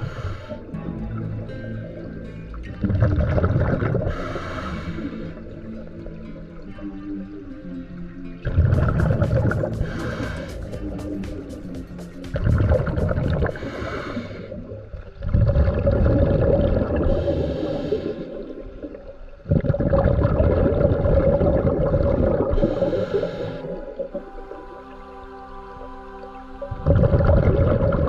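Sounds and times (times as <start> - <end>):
diver breathing through regulator: 0.0 - 0.7, 4.0 - 5.5, 8.8 - 11.7, 12.5 - 14.8, 16.9 - 18.6, 22.4 - 24.2
exhaled bubbles rushing: 2.7 - 4.2, 8.4 - 17.4, 18.1 - 23.0, 26.6 - 28.0.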